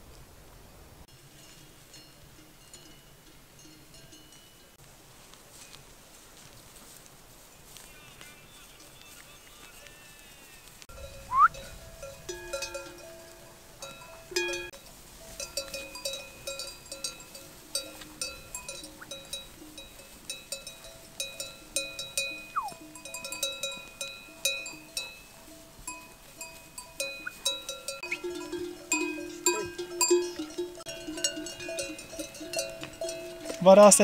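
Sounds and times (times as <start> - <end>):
livestock bells clanking: 1.2 - 4.8, 10.9 - 34.0
short falling call: 11.3 - 11.6
short rising call: 11.3 - 11.6, 22.5 - 22.8.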